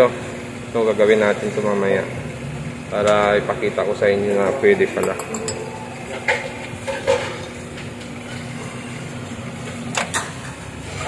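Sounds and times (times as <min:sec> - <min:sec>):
microwave oven humming: 0:00.0 - 0:11.0.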